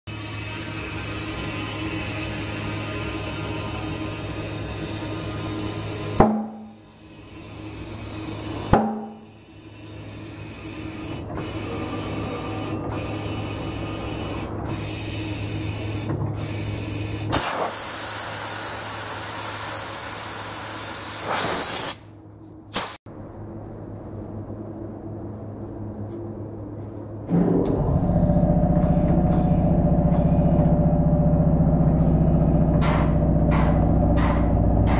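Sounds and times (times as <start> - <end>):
loud air hiss: 0.1 - 22.1, 22.7 - 23.0
sharp knock: 6.2 - 6.7, 8.7 - 9.2
low hum: 22.1 - 34.9.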